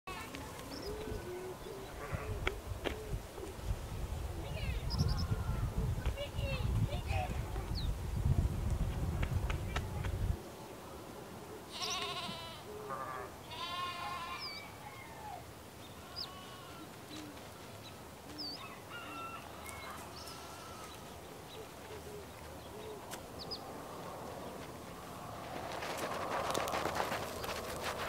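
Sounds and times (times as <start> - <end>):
livestock bleating: 11.7 - 14.8, 15.9 - 17.8, 19.5 - 21.2.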